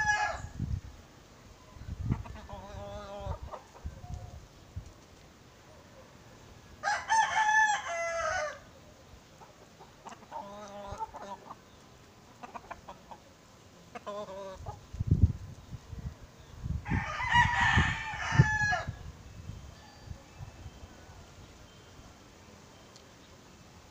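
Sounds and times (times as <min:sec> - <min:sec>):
rooster crowing: 0:00.0 - 0:00.5, 0:06.8 - 0:08.7, 0:16.8 - 0:19.0.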